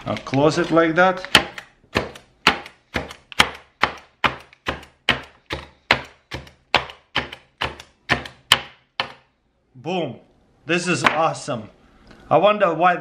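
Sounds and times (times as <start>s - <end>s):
hand chopper chopping lettuce: 0.0s - 9.1s.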